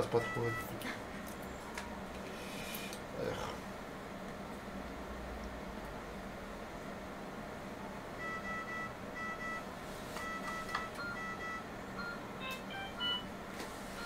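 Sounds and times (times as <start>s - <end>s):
low equipment hum: 0.0s - 14.0s
short two-tone electronic beeps: 0.2s - 0.7s, 8.2s - 9.6s.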